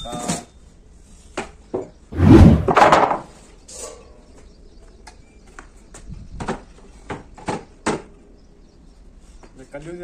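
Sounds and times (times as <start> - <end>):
wooden plank scraping on concrete: 2.2 - 3.3.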